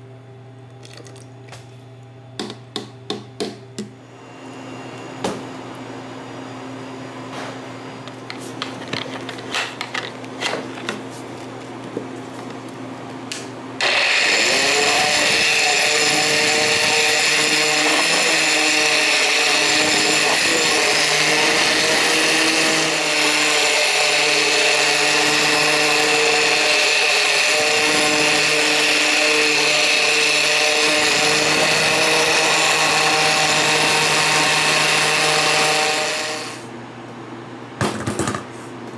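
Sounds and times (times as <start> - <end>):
immersion blender running: 13.8 - 36.7.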